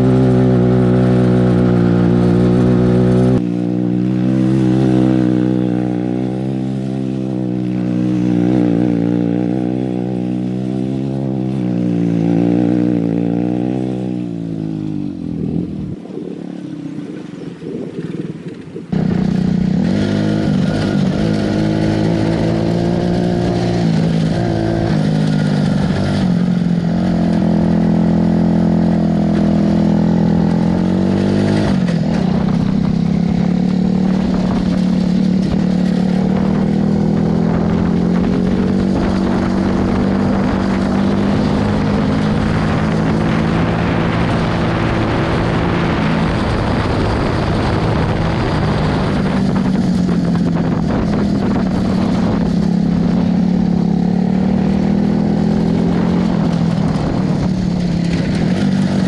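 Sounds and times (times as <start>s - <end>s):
go-kart engine revving: 0.0s - 16.3s, 18.9s - 59.0s.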